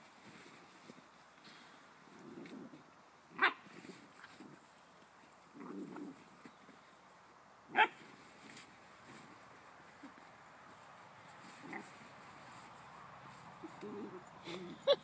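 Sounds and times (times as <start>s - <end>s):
puppies growling softly: 2.0s - 2.9s, 5.4s - 6.7s, 13.5s - 14.9s.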